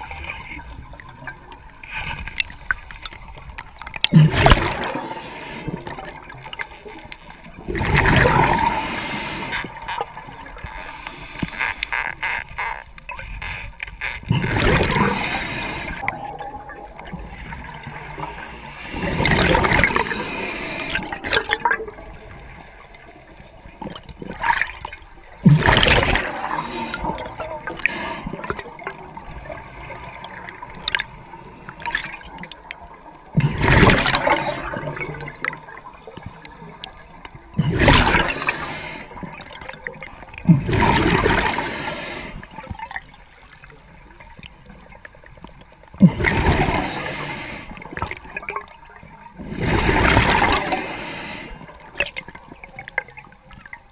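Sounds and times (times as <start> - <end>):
steady hiss of water: 1.7 - 7.0, 7.8 - 12.7, 13.4 - 16.3, 16.9 - 44.9, 46.0 - 53.6
exhaled bubbles rushing: 4.1 - 6.5, 7.6 - 8.8, 14.3 - 22.6, 23.8 - 31.0, 31.8 - 35.8, 37.5 - 41.7, 46.0 - 47.1, 49.4 - 50.9.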